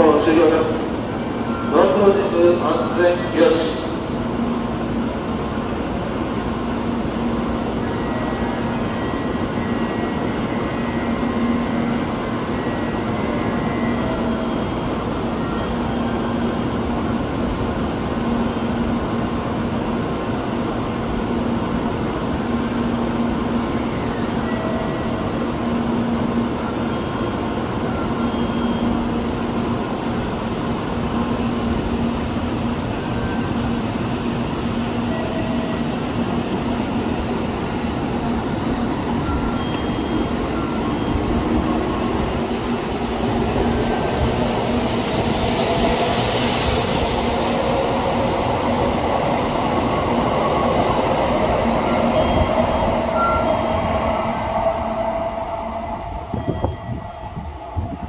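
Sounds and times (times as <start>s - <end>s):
station noise: 0.0s - 20.1s, 23.1s - 58.0s
train equipment humming: 0.0s - 58.0s.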